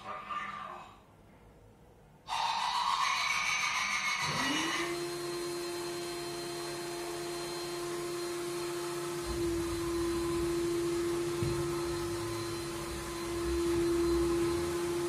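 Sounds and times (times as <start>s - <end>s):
steady hum rising in pitch: 3.0s - 15.0s.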